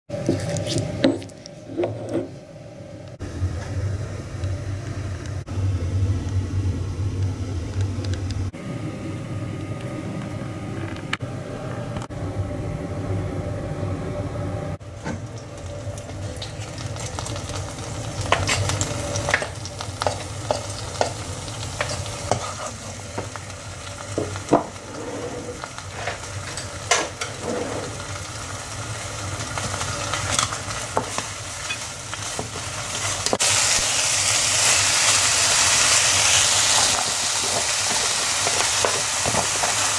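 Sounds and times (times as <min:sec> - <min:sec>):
low hum: 0:00.2 - 0:28.0
food sizzling in oil: 0:14.8 - 0:39.9.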